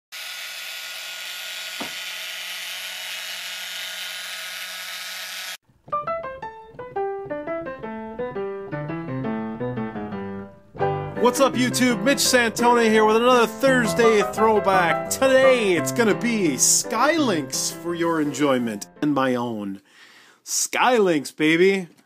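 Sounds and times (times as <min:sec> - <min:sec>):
keyboard theme tune: 0:05.8 - 0:19.5.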